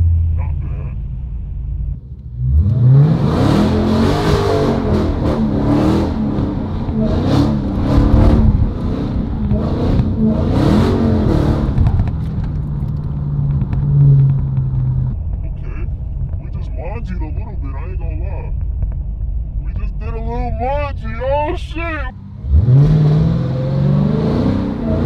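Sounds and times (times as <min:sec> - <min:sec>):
rushing tyre noise: 0:00.0 - 0:25.0
car engine revving hard: 0:02.4 - 0:12.1, 0:22.3 - 0:25.0.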